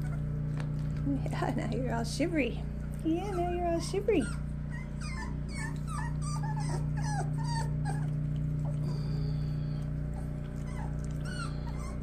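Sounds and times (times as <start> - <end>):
puppies whimpering and squeaking: 0.0 - 0.4, 3.0 - 12.0
steady low hum: 0.0 - 12.0.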